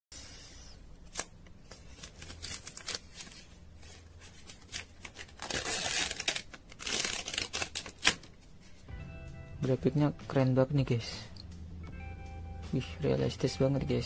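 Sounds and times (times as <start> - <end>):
plastic film crackling: 1.0 - 8.3
plastic film crinkling: 1.1 - 8.3.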